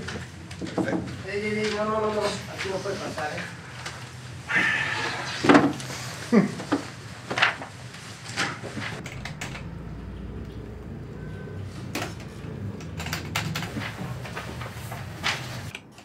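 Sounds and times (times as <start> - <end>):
steady low hum: 6.2 - 15.7
keyboard typing: 9.0 - 10.9, 11.8 - 14.4.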